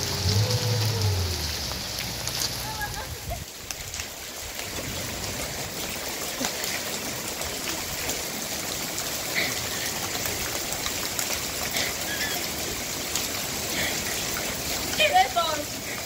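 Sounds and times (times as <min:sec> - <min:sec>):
heavy rain falling: 0:00.0 - 0:16.0.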